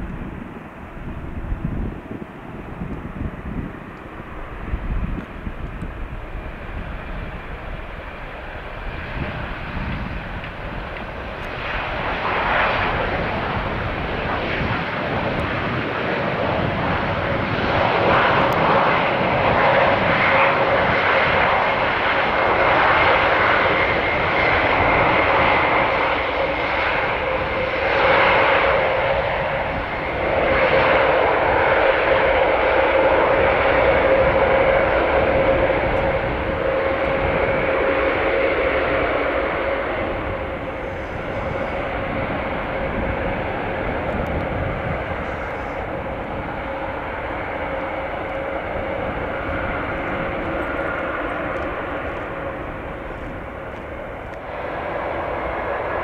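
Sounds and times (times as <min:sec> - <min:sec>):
turboprop engines droning: 0:00.0 - 0:56.0.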